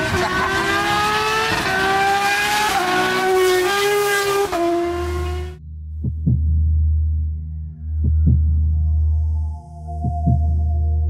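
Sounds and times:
race car engine accelerating: 0.0 - 5.6.

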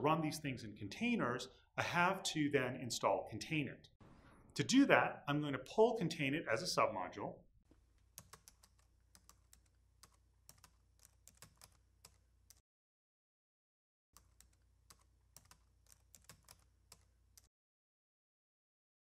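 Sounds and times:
typing on computer keyboard: 8.0 - 12.6, 14.2 - 17.5.

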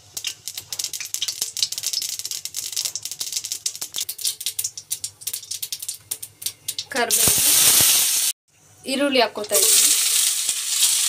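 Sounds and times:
mustard seeds popping in oil: 0.0 - 8.3.

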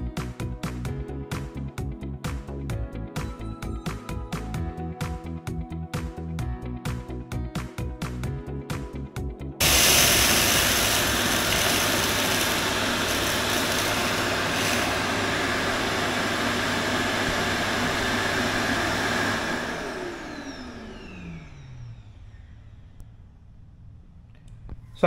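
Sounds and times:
vacuum motor humming: 9.6 - 22.6.

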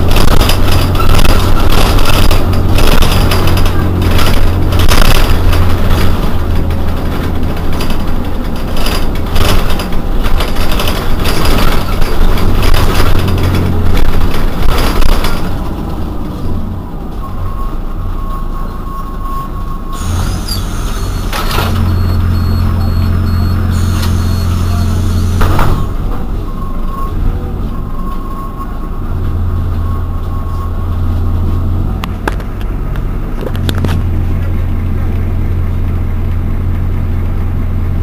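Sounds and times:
bus engine humming: 0.0 - 38.0
steady beep-like tone: 17.2 - 25.9, 29.6 - 31.7.

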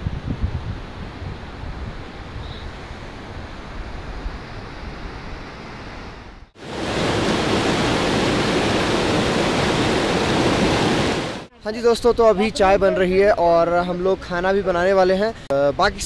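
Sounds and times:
wind rumbling on microphone: 0.0 - 12.9
stream rushing over boulders: 6.6 - 11.5.

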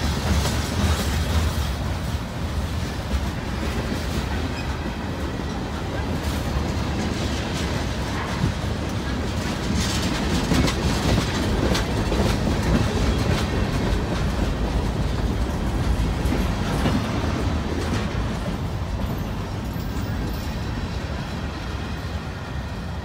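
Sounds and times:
freight train rolling past: 0.0 - 23.0
train wheels clicking: 0.0 - 23.0.

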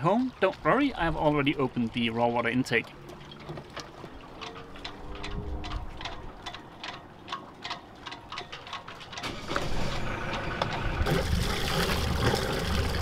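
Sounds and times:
light regular ticks: 2.7 - 9.2
diesel engine cranking and running: 3.1 - 13.0.

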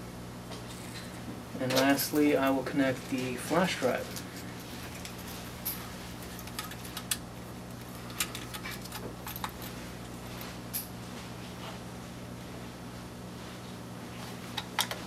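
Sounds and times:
flash drive clicks and rattles: 4.1 - 10.2.

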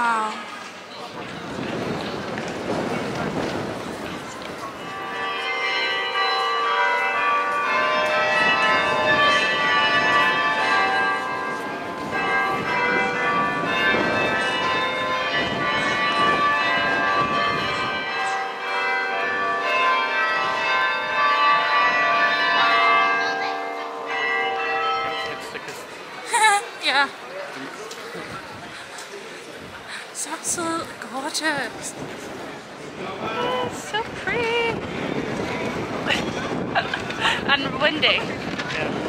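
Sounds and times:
church bells ringing: 3.5 - 26.3.

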